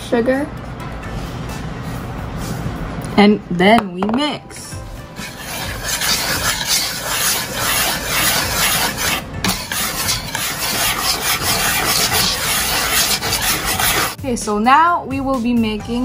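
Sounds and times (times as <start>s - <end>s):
whisk scraping in plastic bowl: 5.2s - 14.2s.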